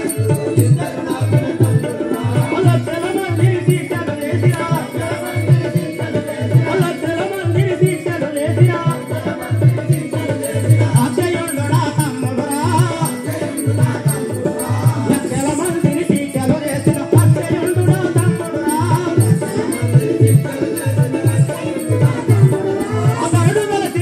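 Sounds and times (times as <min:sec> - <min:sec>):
hand drum beating: 0:00.0 - 0:24.0.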